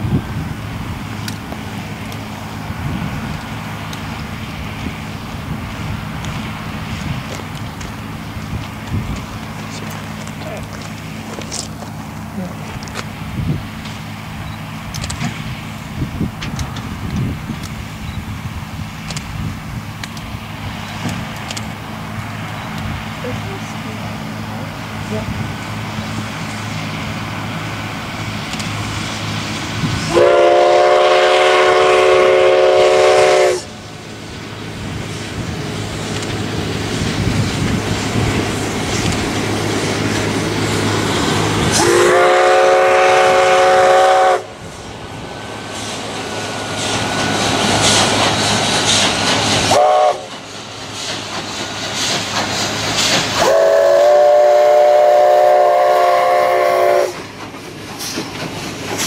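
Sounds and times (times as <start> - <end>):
train wheels on rails: 0.0 - 59.0
steam locomotive chime whistle: 30.1 - 33.7, 41.7 - 44.5, 49.7 - 50.3, 53.4 - 57.2.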